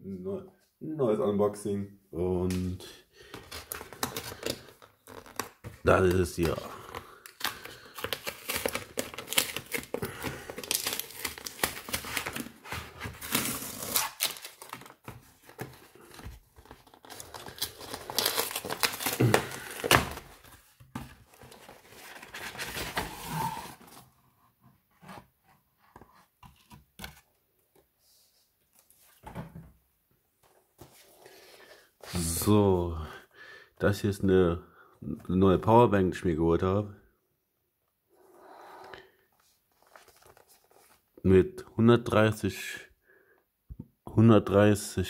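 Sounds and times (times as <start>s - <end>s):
cardboard box being torn open: 10.6s - 15.0s, 17.0s - 20.4s.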